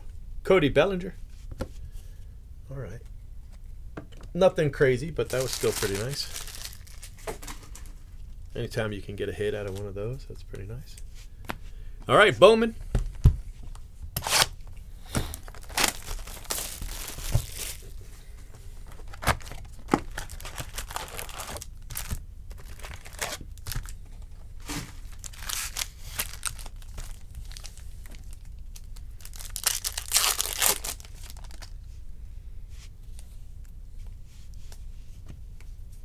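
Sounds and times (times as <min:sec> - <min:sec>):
foil packs tearing and crinkling: 0:05.2 - 0:07.5, 0:14.2 - 0:14.6, 0:15.2 - 0:17.9, 0:18.9 - 0:24.0, 0:24.6 - 0:31.7.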